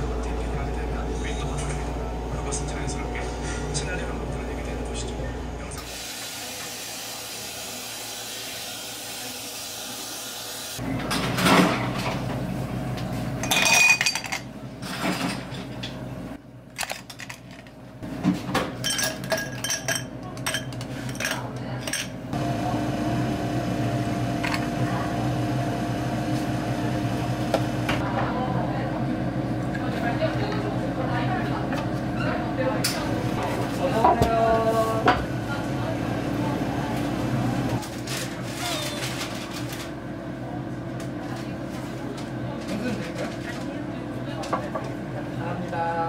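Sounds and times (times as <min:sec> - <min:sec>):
espresso machine steam wand hiss: 0:05.9 - 0:10.8
machine hum: 0:22.3 - 0:38.0.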